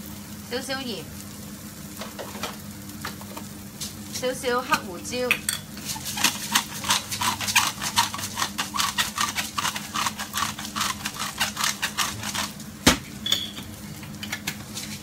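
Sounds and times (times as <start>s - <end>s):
pepper mill grinding: 5.8s - 12.7s.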